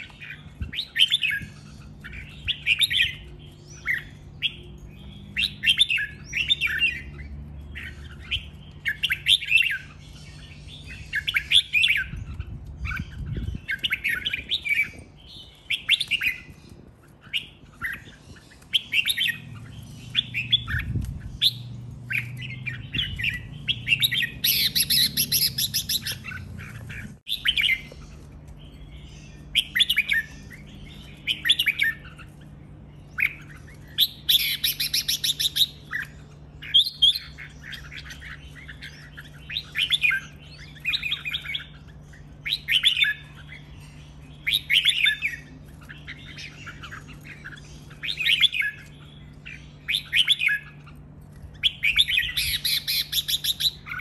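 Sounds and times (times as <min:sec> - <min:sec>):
bird singing short phrases: 0:17.2 - 0:54.0.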